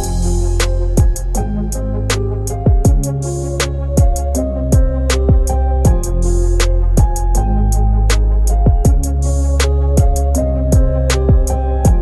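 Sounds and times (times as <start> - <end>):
bass drum hits: 0.0 - 1.4, 2.7 - 3.2, 4.0 - 6.2.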